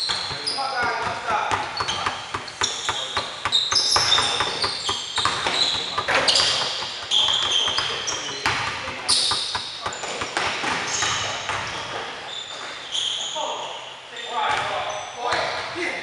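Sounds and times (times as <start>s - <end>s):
basketball bouncing: 0.0s - 11.8s
sneakers squealing: 0.0s - 16.0s.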